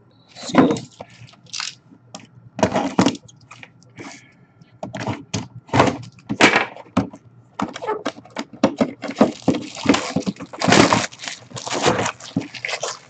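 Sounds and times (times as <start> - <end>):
cardboard being handled: 7.6 - 13.0
plastic seal tearing: 7.6 - 13.0
crinkling plastic wrap: 9.0 - 13.0.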